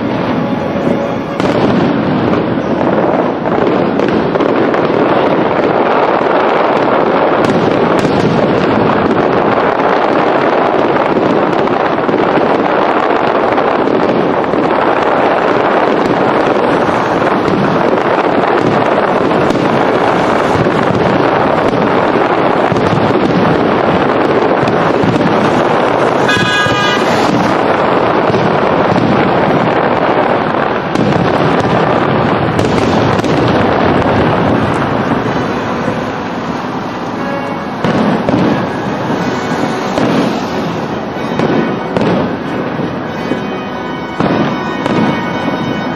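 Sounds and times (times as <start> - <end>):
brief high tone: 0.0 - 1.5, 26.2 - 27.3
fireworks bangs and crackling: 0.0 - 45.9.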